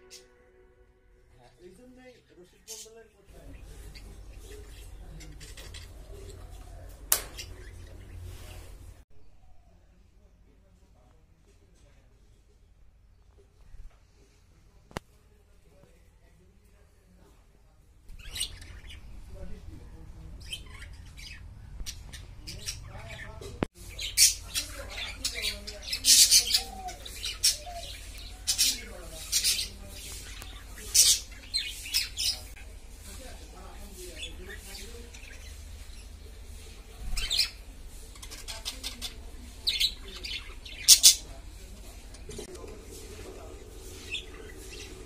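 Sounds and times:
budgerigars chirping and squawking: 18.1 - 19.1, 20.4 - 32.5, 34.0 - 41.4, 42.3 - 45.0.

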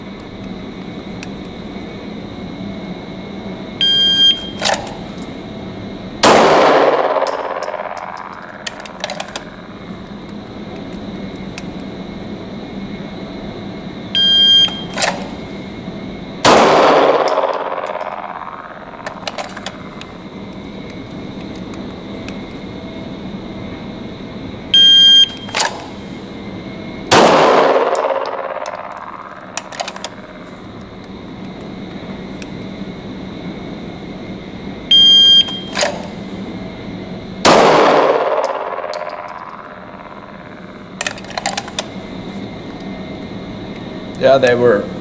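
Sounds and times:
shot timer beeps: 3.8 - 4.6, 14.2 - 14.9, 34.9 - 35.7
pistol shot echoing indoors: 6.2 - 8.8, 16.4 - 20.0, 27.1 - 30.4, 37.4 - 40.8.

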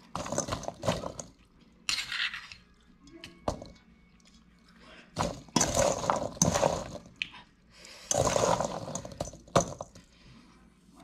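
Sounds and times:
spoon stirring fruit in metal bowl: 0.0 - 3.9, 5.2 - 7.2, 8.0 - 10.0.

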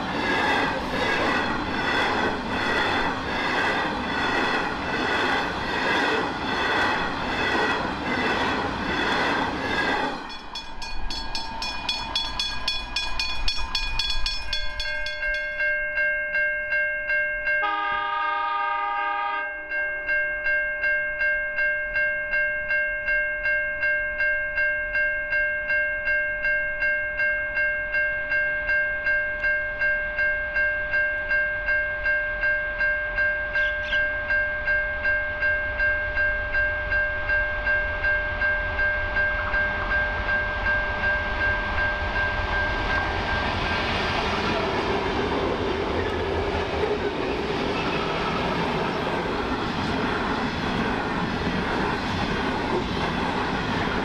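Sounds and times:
train rumble: 0.0 - 15.9, 33.2 - 54.0
level crossing bell ringing: 10.3 - 17.9
train horn: 17.6 - 19.7.

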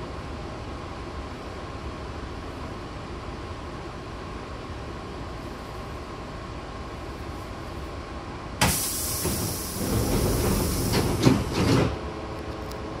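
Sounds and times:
train car hum: 0.0 - 13.0
loud air hiss: 8.6 - 11.6
sliding doors rumbling shut: 8.6 - 12.1.

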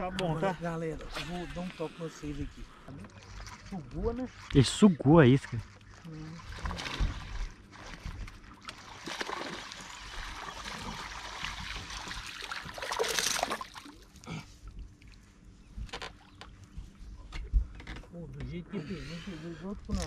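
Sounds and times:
fish splashing in water: 5.9 - 14.2.

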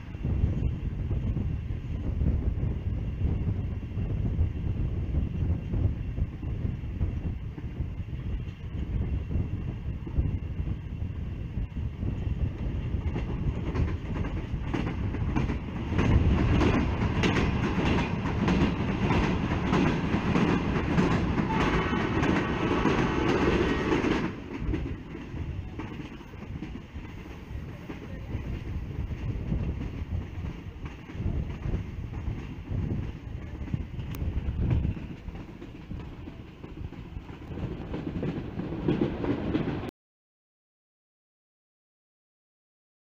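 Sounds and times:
train rumbling on rails: 0.0 - 39.9
wheels clickety-clack: 12.4 - 39.9.

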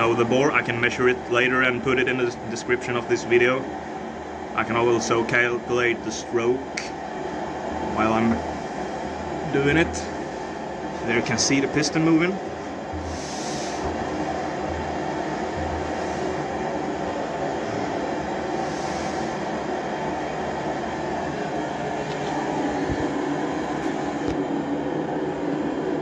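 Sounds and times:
blowtorch burning: 12.5 - 25.9.

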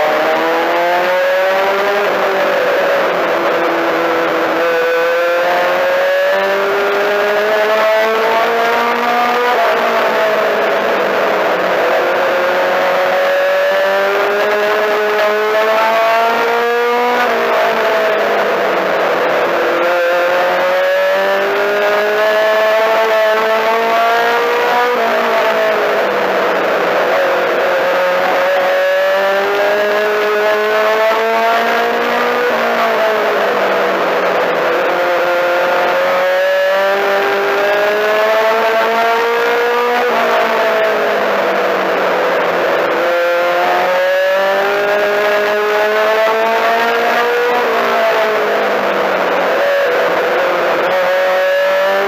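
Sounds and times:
race car engine accelerating: 0.0 - 52.0.

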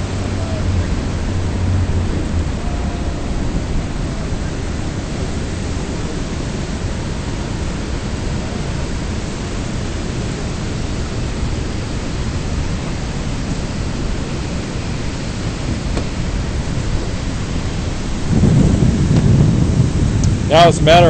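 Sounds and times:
water rushing past boat: 0.0 - 21.0
wind buffeting microphone: 0.0 - 21.0.

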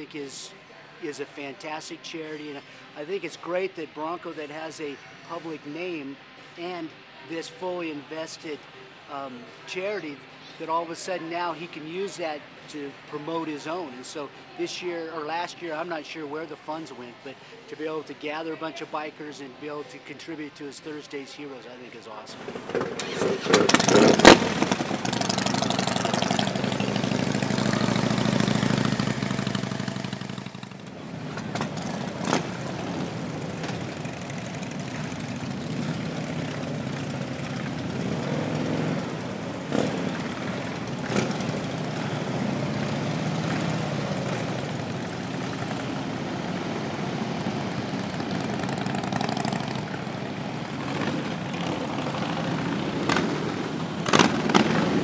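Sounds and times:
motorcycles idling: 22.3 - 55.0
motorcycles riding past: 22.3 - 55.0.

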